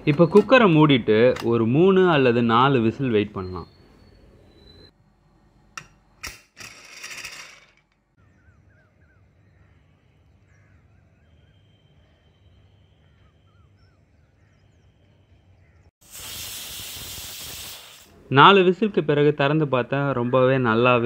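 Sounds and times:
birds chirping: 0.0 - 5.0, 8.2 - 15.9
pressure cooker steam hiss: 16.0 - 18.2.

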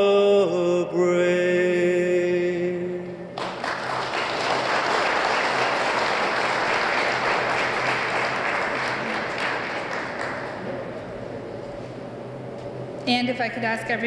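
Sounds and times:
audience applause: 3.4 - 11.0.

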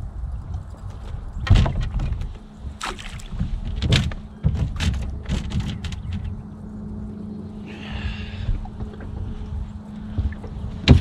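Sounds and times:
steady low hum: 0.0 - 11.0
water splashing at boat bow: 1.5 - 6.2.

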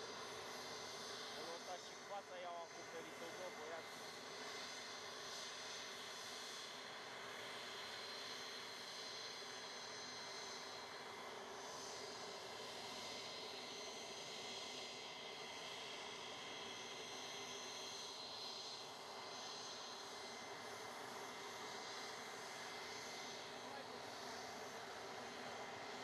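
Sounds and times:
jet engine rushing and whining: 0.0 - 5.8, 15.2 - 26.0.

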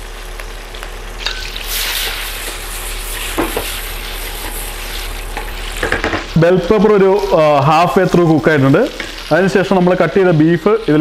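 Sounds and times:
peppers sizzling in oil: 0.0 - 11.0
wooden spatula knocking and scraping: 3.3 - 3.8, 5.4 - 6.3.

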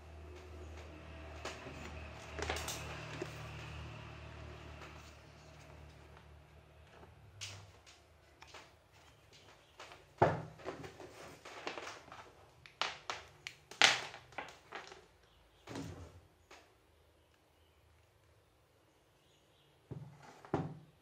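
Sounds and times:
knocks and rustles of handling: 0.4 - 3.9, 4.7 - 16.7.

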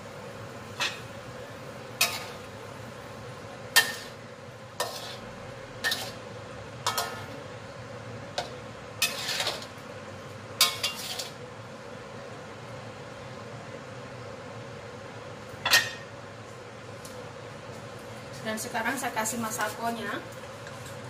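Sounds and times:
steady hiss of cooking: 0.0 - 21.0
spatula scraping frying pan: 2.0 - 2.5, 3.8 - 7.4, 8.4 - 9.8, 10.6 - 11.4.

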